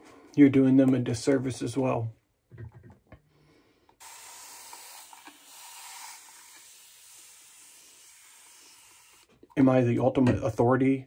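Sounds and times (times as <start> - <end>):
shaving brush lathering hiss: 4.0 - 9.3.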